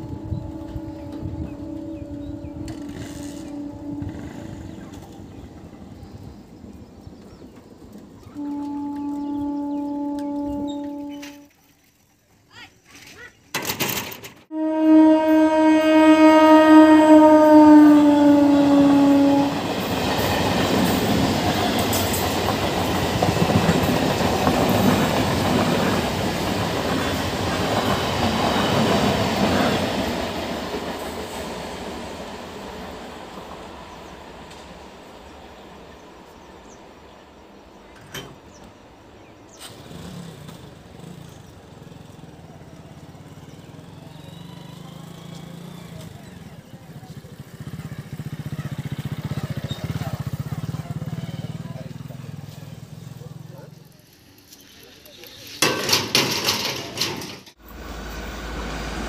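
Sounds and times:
train horn: 0.0 - 5.7, 8.2 - 11.6, 14.5 - 26.6
train wheels clattering on rails: 19.7 - 31.6, 53.8 - 57.6.

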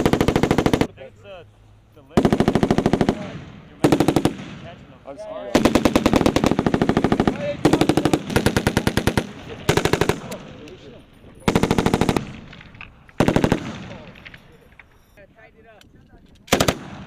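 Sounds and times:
machine gun bursts: 0.0 - 0.9, 3.8 - 4.4, 5.5 - 10.5, 11.5 - 12.4, 13.2 - 14.2, 16.5 - 17.0.

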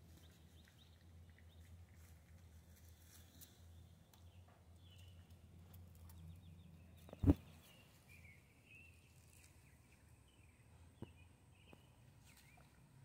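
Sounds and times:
faint bird chirps: 6.0 - 13.0.

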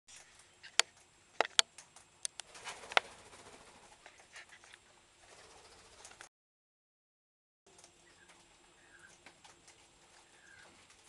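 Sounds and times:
beaks cracking seed: 0.1 - 3.0
beaks tapping on wood: 0.6 - 3.1.

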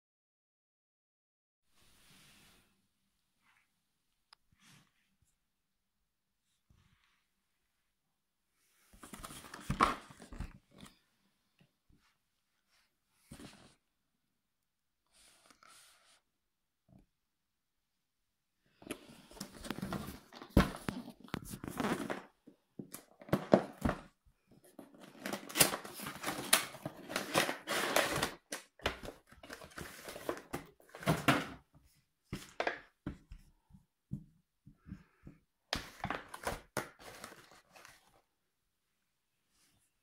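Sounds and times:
cardboard rustling and scraping: 19.2 - 22.4, 24.7 - 31.6, 35.8 - 38.2
plastic tray rustling: 23.1 - 31.6.

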